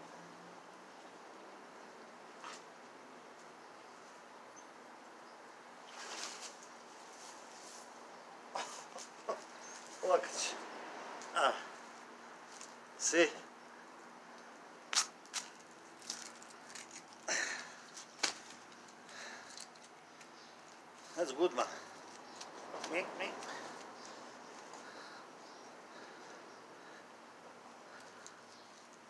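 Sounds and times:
faint outdoor hiss: 0:00.0 - 0:29.0
wet rope swishing through gloves: 0:05.9 - 0:07.9.

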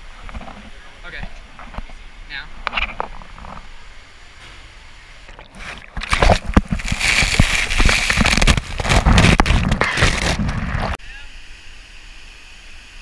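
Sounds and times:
rushing water and air: 0:01.4 - 0:13.0
water splashing over camera: 0:05.3 - 0:11.0.

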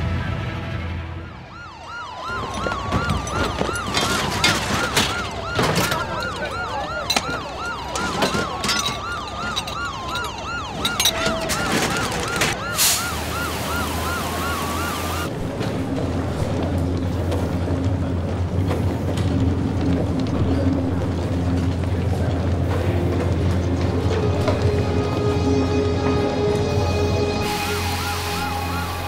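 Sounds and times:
sirens wailing: 0:00.3 - 0:29.0
siren yelping: 0:01.3 - 0:15.3, 0:23.9 - 0:29.0.

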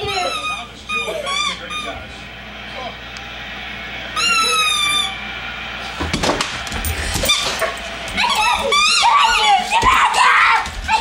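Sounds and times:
dog whining: 0:00.0 - 0:02.0
knocks and scuffling on floor: 0:06.0 - 0:11.0.

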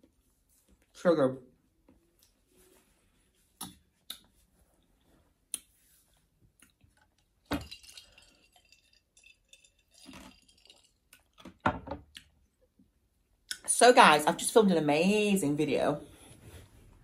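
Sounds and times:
glass clinking: 0:07.5 - 0:11.0.

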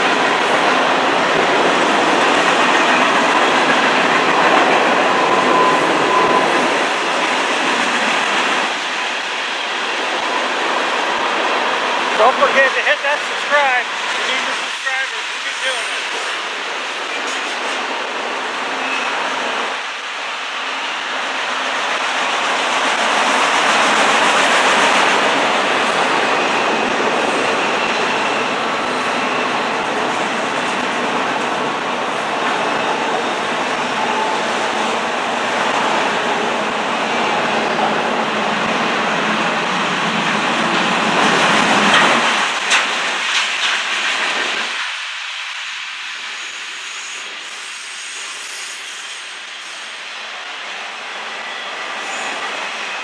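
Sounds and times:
steel wheels rolling on rail: 0:00.0 - 0:53.0
sharp rail clacks: 0:40.7 - 0:45.0.

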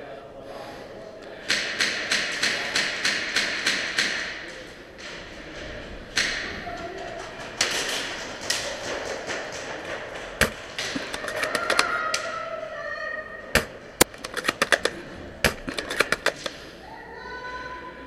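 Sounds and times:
airsoft guns firing: 0:01.5 - 0:05.1, 0:07.2 - 0:12.2, 0:13.6 - 0:16.6
pellets striking surfaces: 0:07.2 - 0:12.0, 0:13.6 - 0:16.6.

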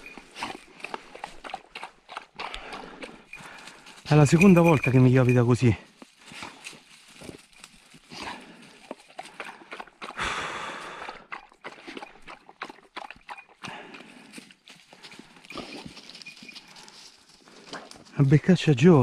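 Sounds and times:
crunching through dry leaves: 0:03.4 - 0:09.7, 0:14.1 - 0:18.5.

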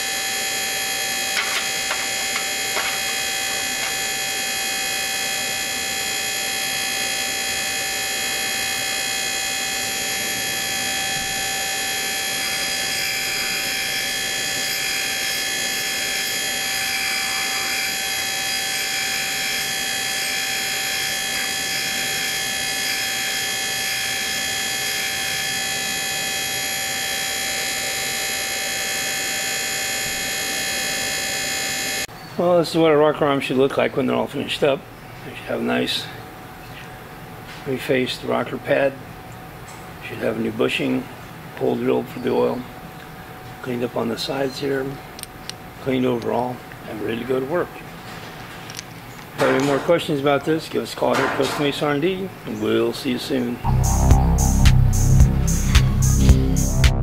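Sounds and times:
machine whine over hiss: 0:00.0 - 0:32.1, 0:53.6 - 0:57.0.

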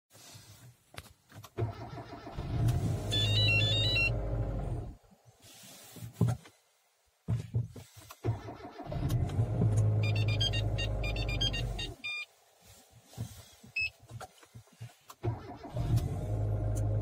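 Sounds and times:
car starter cranking: 0:01.5 - 0:05.0, 0:08.1 - 0:12.0, 0:15.1 - 0:17.0.

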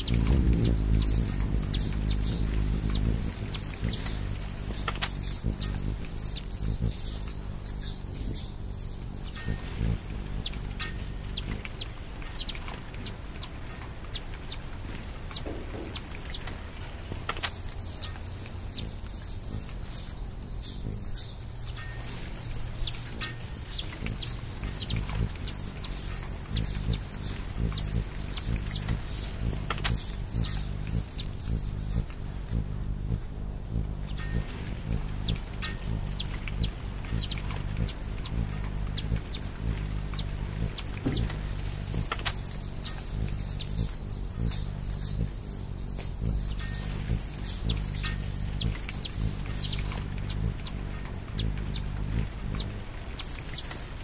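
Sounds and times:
insects trilling: 0:00.0 - 0:54.0.

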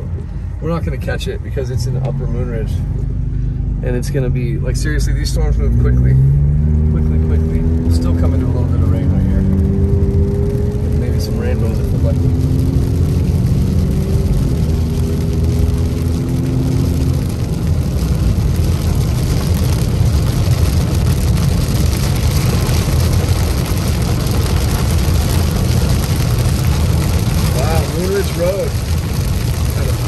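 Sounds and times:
car engine and tyres rumbling: 0:00.0 - 0:30.0
rain and spray hissing: 0:09.6 - 0:30.0.

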